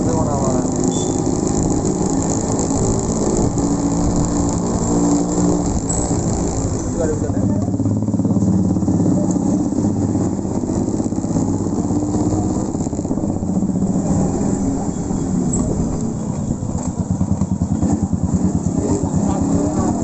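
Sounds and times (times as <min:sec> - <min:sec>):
motorcycle engine at low revs: 0:00.0 - 0:20.0.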